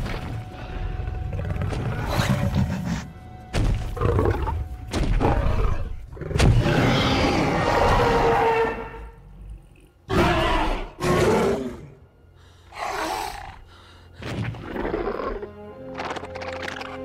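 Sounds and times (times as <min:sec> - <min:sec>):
dinosaur roaring: 0:05.2 - 0:09.2.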